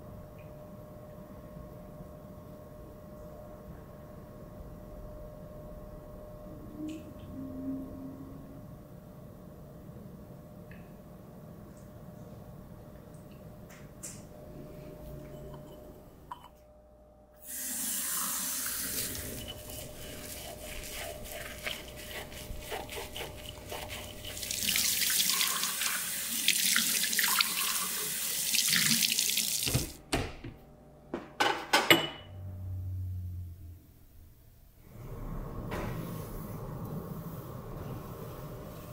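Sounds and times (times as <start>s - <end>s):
sponge scrubbing glass jar: 18.7s - 25.2s
tap running into sink: 28.6s - 30.3s.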